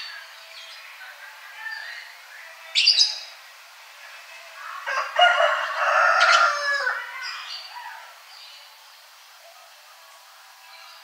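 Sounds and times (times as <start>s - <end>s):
rooster crowing: 4.6s - 7.3s.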